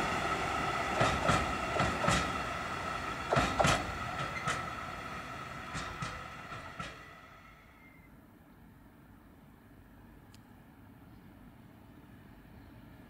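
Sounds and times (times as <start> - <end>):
train wheels clicking over rails: 0.0 - 8.0.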